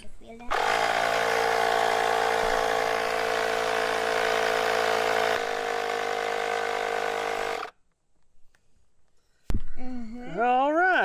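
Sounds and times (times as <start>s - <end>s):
electric air pump running: 0.5s - 7.7s.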